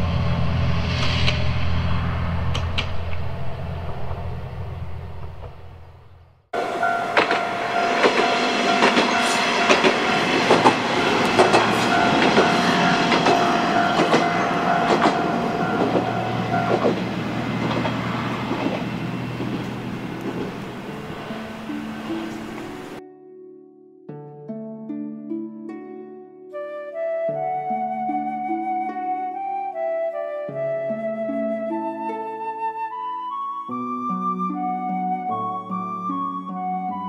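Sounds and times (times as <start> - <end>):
low engine hum: 0.0 - 9.0, 9.9 - 23.0
deep diesel engine rumble: 0.0 - 23.0
steady high whine: 0.0 - 23.0
wheels clicking over rail joints: 6.6 - 23.0.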